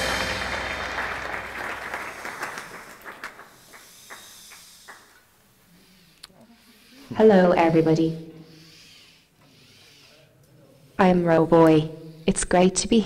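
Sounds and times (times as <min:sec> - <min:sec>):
audience applause: 0:00.0 - 0:05.2
scattered single claps: 0:00.0 - 0:05.3.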